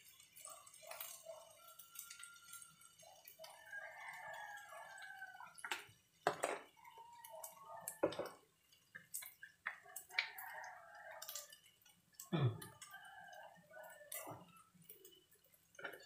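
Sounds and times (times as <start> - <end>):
faint chicken calls: 0.5 - 5.7, 6.7 - 8.3, 9.7 - 11.6, 12.3 - 15.1.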